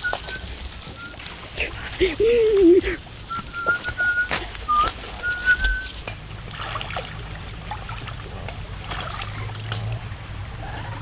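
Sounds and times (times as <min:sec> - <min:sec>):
whistled notes: 0:00.0 - 0:01.3, 0:03.3 - 0:06.0
trickling and splashing water: 0:00.0 - 0:11.0.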